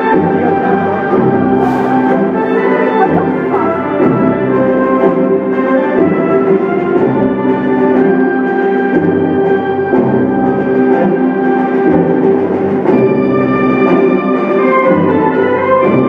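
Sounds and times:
sustained chords: 0.0s - 16.0s
drum hits: 0.1s - 8.2s
sharp hit: 1.5s - 2.8s.

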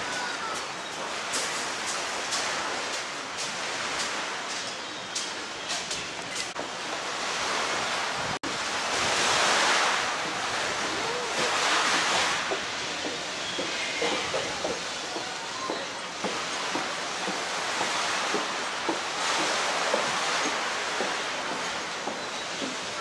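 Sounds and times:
small waves on shingle: 0.0s - 23.0s
surf washing around pier legs: 0.0s - 23.0s.

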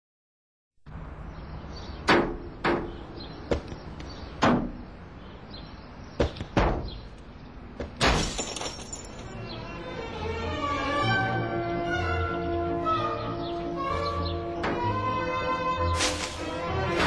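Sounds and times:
sharp knocks and bangs: 2.0s - 4.8s, 6.2s - 7.1s, 7.8s - 9.3s.

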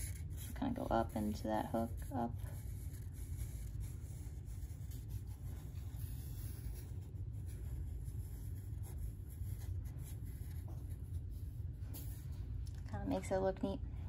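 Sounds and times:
marker scratching on paper: 0.0s - 12.4s
steady low rumble: 0.0s - 14.0s.

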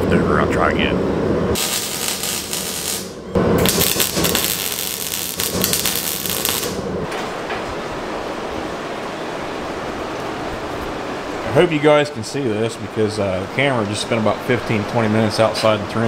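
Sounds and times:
arc welding crackling hiss: 1.6s - 6.9s.

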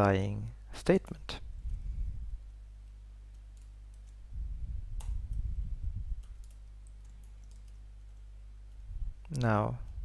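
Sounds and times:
low electrical hum: 0.0s - 10.0s
keyboard typing: 6.2s - 8.3s.

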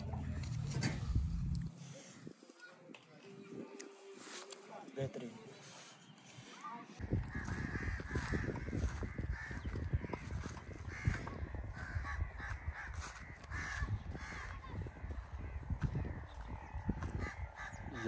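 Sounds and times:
low rumbling background: 0.0s - 1.8s
crows cawing: 7.0s - 18.0s.

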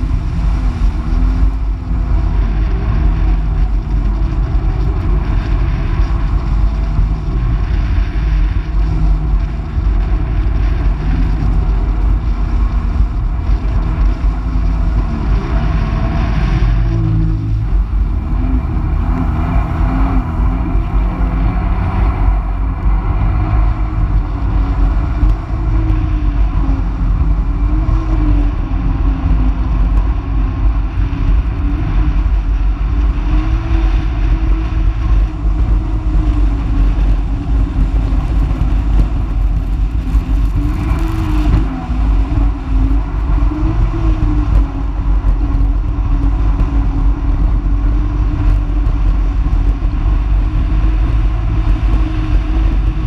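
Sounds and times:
watercraft engine drone: 0.0s - 53.0s
wind and water rumble: 0.0s - 53.0s.

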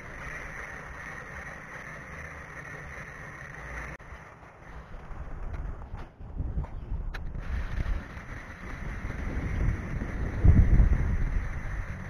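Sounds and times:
wind noise on microphone: 4.6s - 12.0s.

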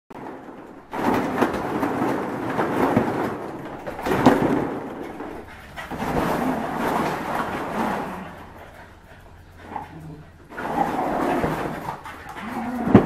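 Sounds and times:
plastic balls rattling: 0.2s - 8.6s.

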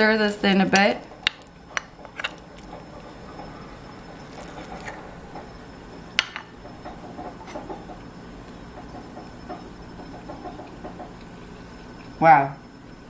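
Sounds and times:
coffee maker rumbling: 1.0s - 11.2s.

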